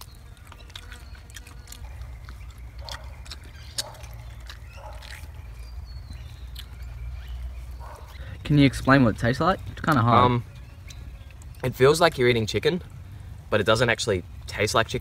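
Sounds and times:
wet mouth clicks and smacks: 0.0s - 6.8s
person chewing meat: 0.0s - 8.3s.

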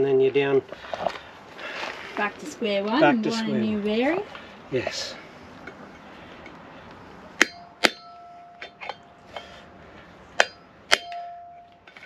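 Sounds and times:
hammer striking steel drift: 7.4s - 9.7s, 10.4s - 12.0s.

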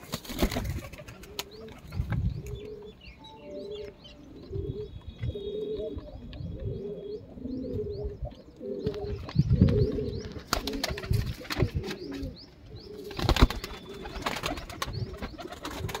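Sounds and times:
pigeons cooing: 0.0s - 16.0s.

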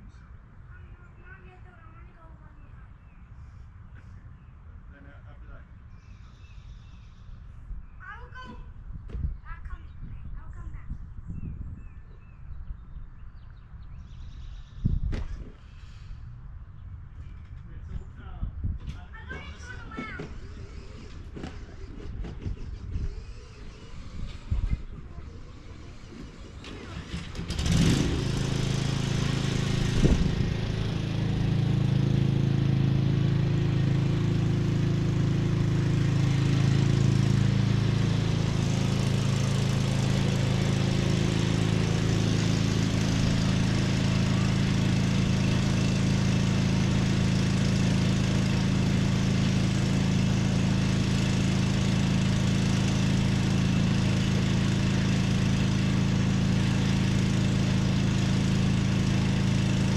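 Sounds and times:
lawn mower engine running: 19.1s - 59.9s.

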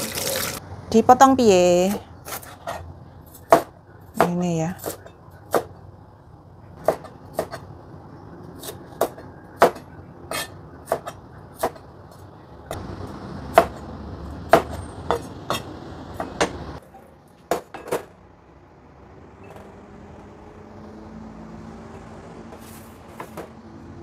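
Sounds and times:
cleaver chopping on cutting board: 8.6s - 11.8s, 14.5s - 16.6s.

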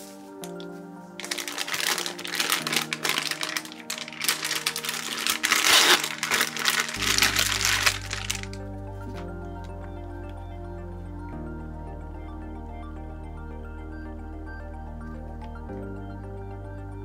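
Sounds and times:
background music: 0.0s - 17.0s
plastic bag crinkling: 0.4s - 8.6s.

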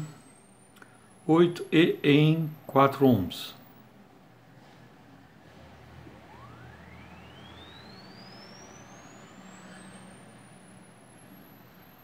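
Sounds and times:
faint low hum: 0.0s - 12.0s
sine tone sweeping upward: 5.8s - 12.0s.

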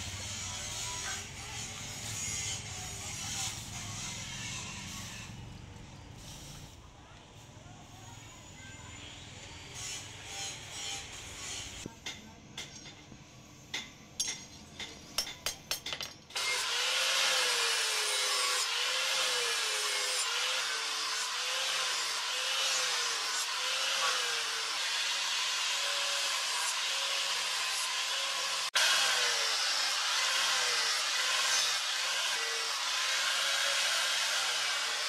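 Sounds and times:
angle grinder grinding steel: 0.0s - 6.7s, 9.0s - 11.9s, 16.3s - 35.0s
hammer striking steel on anvil: 13.7s - 16.2s.

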